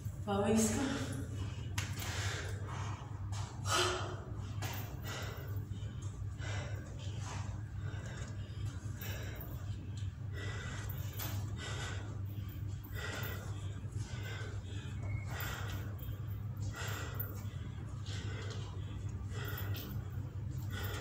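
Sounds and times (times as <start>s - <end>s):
steady low hum: 0.0s - 21.0s
woman breathing hard: 0.8s - 21.0s.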